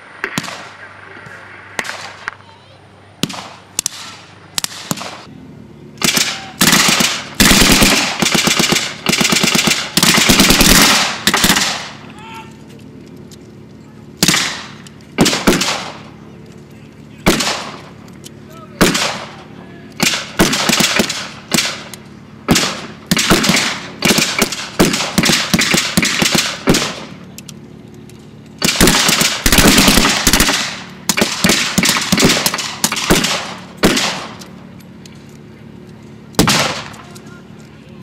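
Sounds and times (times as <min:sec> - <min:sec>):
rifle shots: 0:00.2 - 0:00.9, 0:03.2 - 0:05.3, 0:06.0 - 0:12.0, 0:14.2 - 0:16.1, 0:17.2 - 0:18.0, 0:18.8 - 0:19.4, 0:20.0 - 0:27.2, 0:28.6 - 0:34.6, 0:36.4 - 0:37.1
rapid gunfire: 0:06.0 - 0:12.0, 0:14.2 - 0:16.1, 0:17.2 - 0:17.9, 0:18.8 - 0:19.4, 0:20.0 - 0:21.9, 0:22.5 - 0:27.1, 0:28.6 - 0:34.4, 0:36.4 - 0:37.0.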